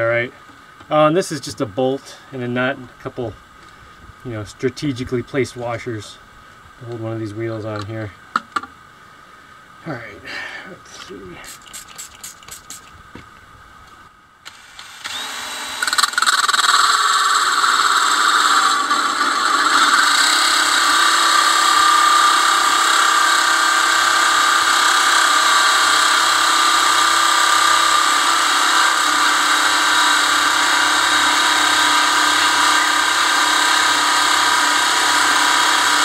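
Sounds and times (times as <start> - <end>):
drill disc grinding steel: 14.5 - 36.0.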